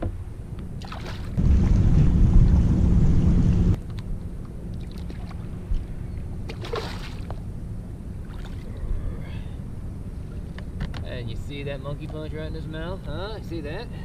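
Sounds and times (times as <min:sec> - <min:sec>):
wind noise: 0:00.0 - 0:04.2
low hum with faint knocks: 0:00.0 - 0:13.2
water splash: 0:00.8 - 0:03.5, 0:06.5 - 0:07.4
heavy low rumble: 0:01.3 - 0:04.3.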